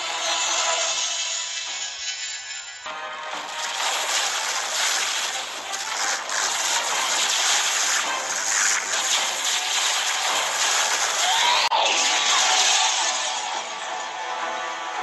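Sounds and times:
flames rushing: 3.4 - 13.2.

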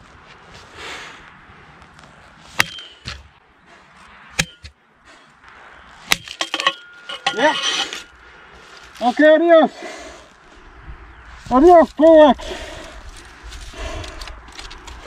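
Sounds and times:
axe ringing against steel post: 2.6 - 3.2, 4.4 - 4.8, 6.1 - 8.1.

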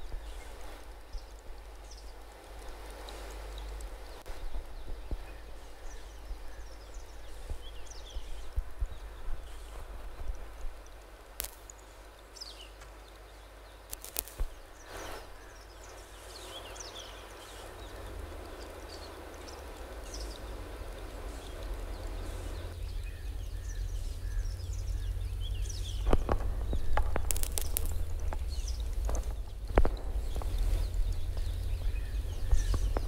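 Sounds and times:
hiss: 13.9 - 22.8
low rumble: 17.9 - 33.0
sharp clicks and knocks: 26.0 - 31.7.

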